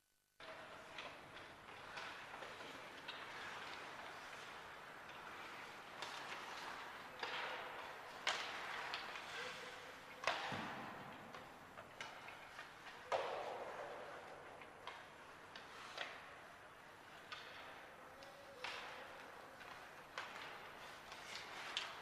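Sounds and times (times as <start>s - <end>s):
sharp echoing knocks on ice: 10.2s - 12.3s, 13.1s - 14.4s.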